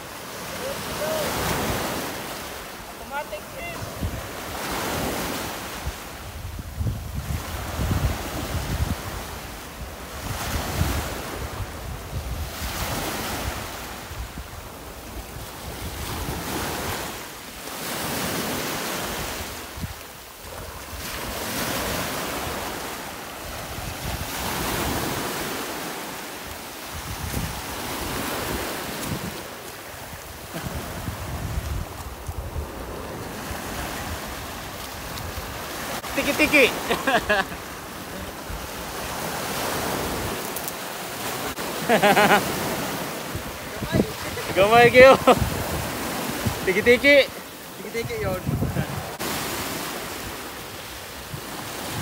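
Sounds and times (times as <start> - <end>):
waves washing against rocks: 0.0 - 52.0
wind buffeting microphone: 5.8 - 17.0, 26.9 - 35.8, 43.2 - 46.7, 48.0 - 49.2.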